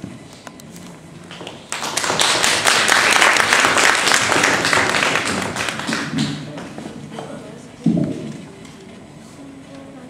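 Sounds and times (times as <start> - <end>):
audience applauding: 1.4 - 6.5.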